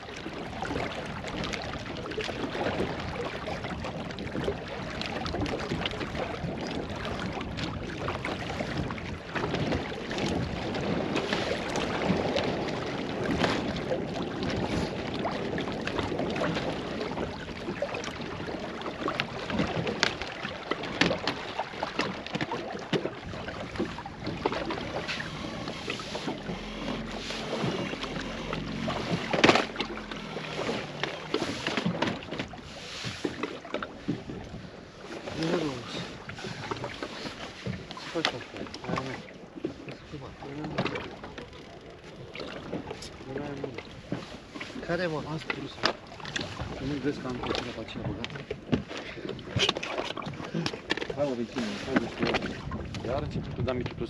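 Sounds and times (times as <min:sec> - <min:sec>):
water washing: 0:05.0 - 0:33.5, 0:35.2 - 0:37.3
wind noise: 0:51.6 - 0:54.0.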